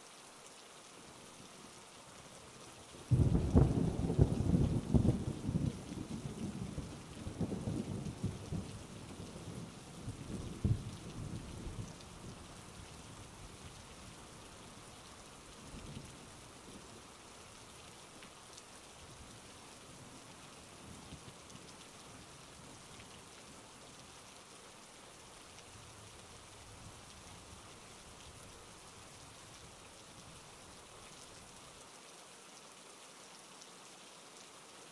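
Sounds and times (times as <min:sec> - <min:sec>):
steady rain: 0:00.0 - 0:34.9
thunder rumbling: 0:03.1 - 0:08.9, 0:09.5 - 0:11.9.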